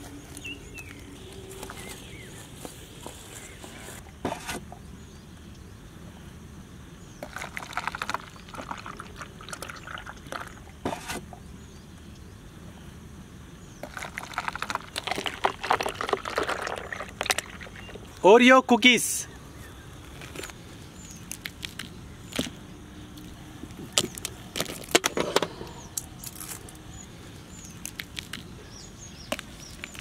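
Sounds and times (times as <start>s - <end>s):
liquid pouring into plastic cups: 7.2s - 11.2s, 13.8s - 18.2s.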